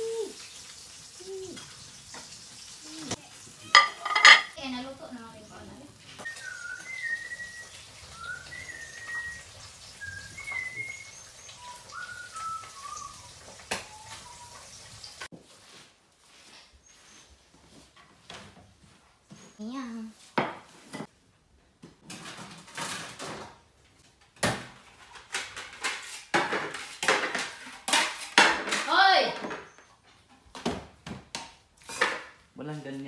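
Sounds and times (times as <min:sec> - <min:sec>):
plate clinking on tiles: 0:03.7 - 0:04.6
sliding whistled notes: 0:06.2 - 0:14.6.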